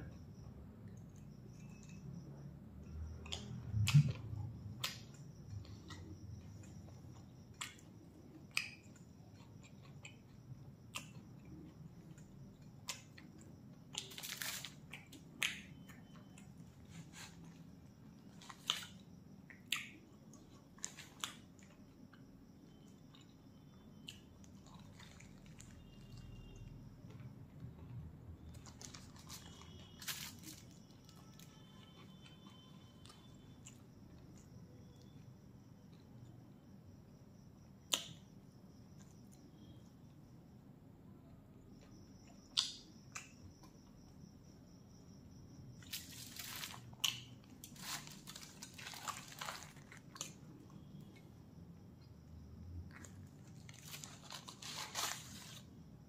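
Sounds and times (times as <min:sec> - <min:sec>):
lip smacks and clicks: 0:03.2 - 0:04.2
man chewing food: 0:03.2 - 0:26.3, 0:27.1 - 0:35.2, 0:45.8 - 0:51.4.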